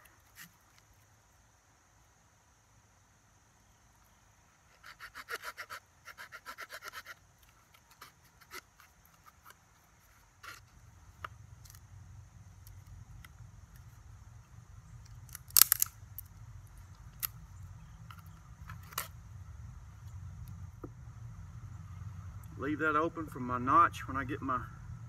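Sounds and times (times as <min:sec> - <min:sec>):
faint low rumble: 0:10.7 - 0:25.0.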